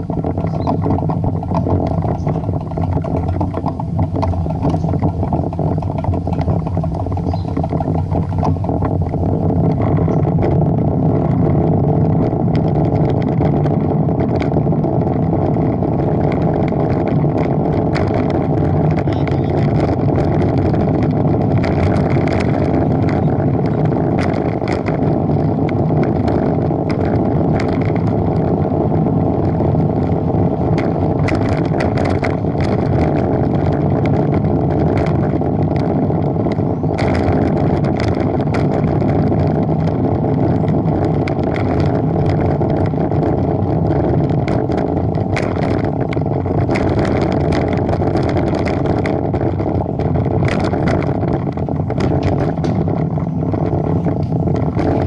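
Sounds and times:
small ticks and rattles: 0.0s - 55.0s
tyre noise on asphalt: 0.0s - 55.0s
wind rushing over microphone: 0.0s - 55.0s.

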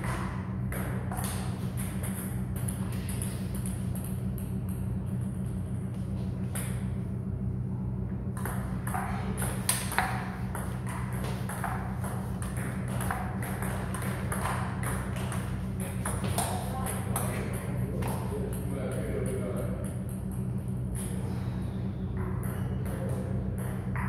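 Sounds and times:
table tennis ball ticking: 19.6s - 21.0s.

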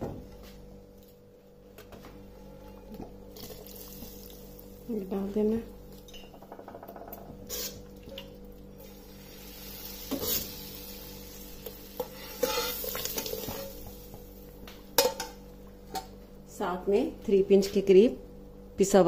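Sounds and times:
hot oil sizzling: 8.8s - 14.6s
metal spoon scraping pan: 12.0s - 13.6s.

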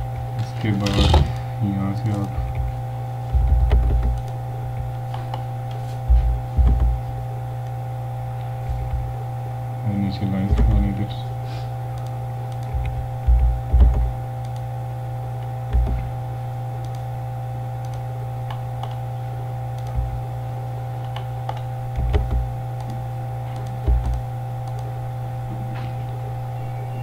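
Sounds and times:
steady electrical hum: 0.0s - 27.0s
dull knocks: 3.3s - 4.2s, 6.1s - 7.2s, 12.7s - 14.2s, 15.7s - 16.1s, 21.9s - 22.5s, 23.8s - 24.2s
computer keystrokes: 3.3s - 4.4s, 12.0s - 14.7s, 15.7s - 16.1s, 16.8s - 17.1s, 17.8s - 19.0s, 19.8s - 20.1s, 21.0s - 24.9s
mouse clicks: 12.0s - 13.0s, 17.8s - 19.0s, 19.8s - 20.0s.

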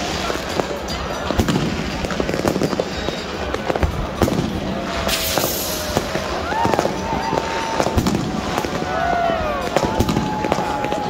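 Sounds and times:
crowd voices: 0.0s - 11.0s
fireworks bangs and crackling: 0.0s - 11.0s
loud hissing burst: 5.0s - 6.0s.

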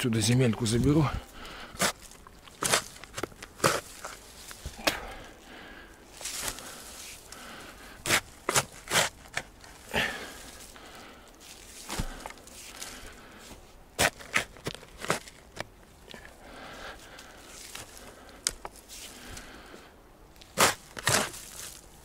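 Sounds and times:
shovel chopping and scraping soil: 1.7s - 5.2s, 6.2s - 7.4s, 8.0s - 10.7s, 11.4s - 13.0s, 14.0s - 15.7s, 20.4s - 21.8s.

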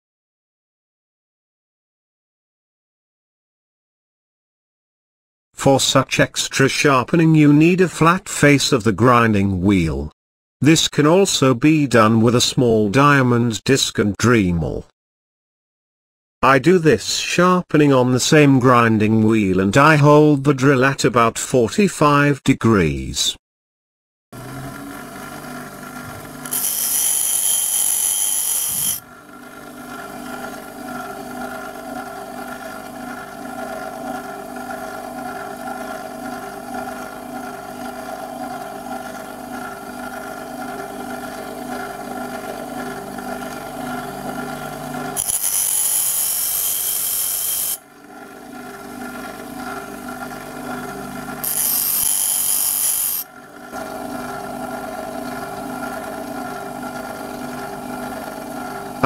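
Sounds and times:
bench grinder motor hum: 24.4s - 59.0s.

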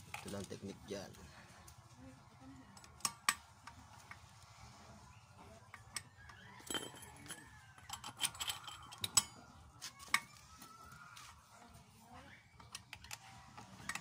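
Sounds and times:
wrench clinking on metal nut: 5.7s - 9.4s.

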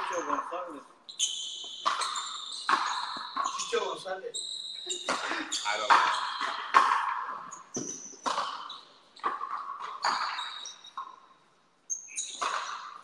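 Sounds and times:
rubber ball hitting racquets and wall: 0.0s - 0.8s, 1.6s - 4.0s, 5.0s - 11.2s, 12.2s - 13.0s
short high squeaks: 1.1s - 6.7s, 10.0s - 11.2s, 11.9s - 12.8s.

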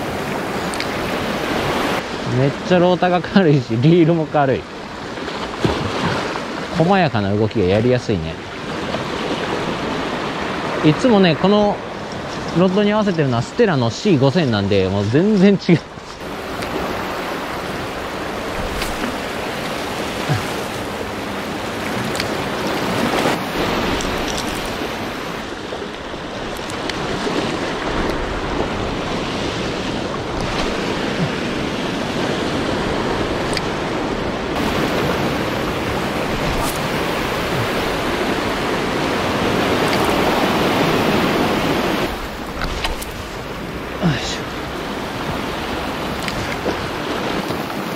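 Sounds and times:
waves washing against rocky shore: 16.1s - 47.9s.

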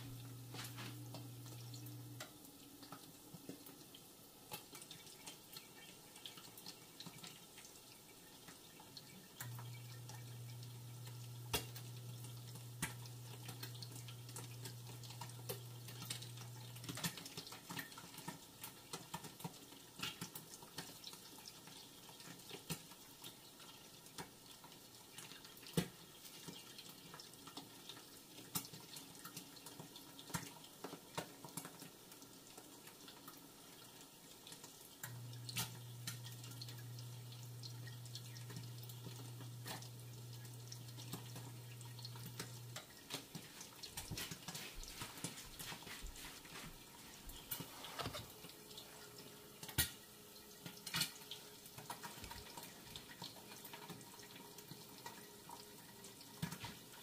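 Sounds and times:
low steady hum: 0.0s - 3.0s, 8.0s - 17.1s, 35.0s - 56.0s
eggs sizzling in a pan: 0.0s - 57.0s.

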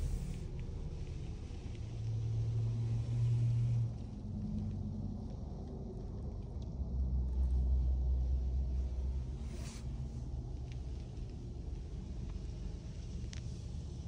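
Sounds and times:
car cabin engine rumble: 0.0s - 4.2s.

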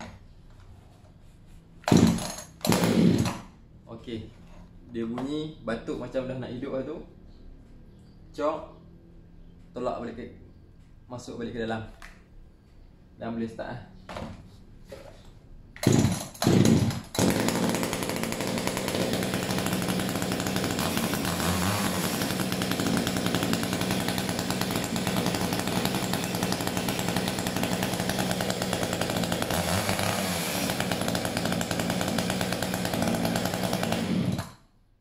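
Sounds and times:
chainsaw pull-start: 1.8s - 3.5s, 15.8s - 34.7s
chainsaw engine running: 1.9s - 3.5s, 15.8s - 34.6s.

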